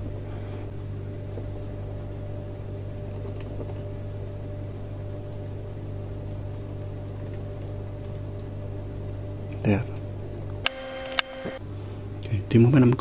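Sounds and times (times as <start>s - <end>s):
low mechanical hum: 0.0s - 13.0s
faint clicks of wires: 9.9s - 11.6s.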